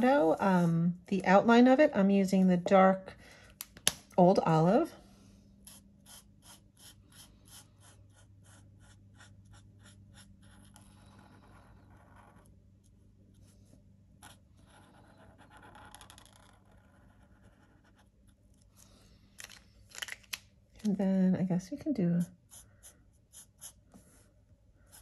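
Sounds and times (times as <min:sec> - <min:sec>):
marker scratching on cardstock: 0:05.7 - 0:12.5.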